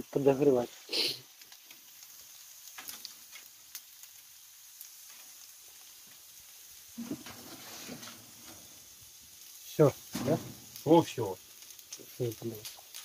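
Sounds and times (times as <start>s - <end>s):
food sizzling on a metal tray: 0.0s - 13.0s
metal spatula scraping a tray: 7.0s - 8.4s.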